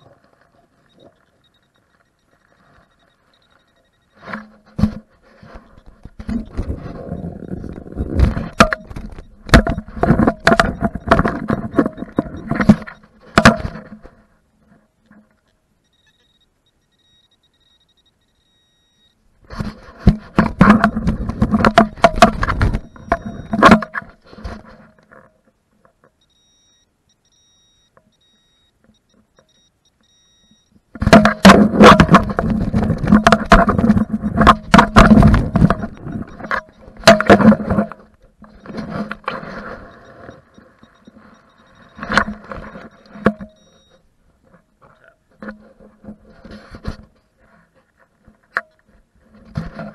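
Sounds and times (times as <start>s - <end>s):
digging dry soil: 0.0s - 15.3s, 30.9s - 49.9s.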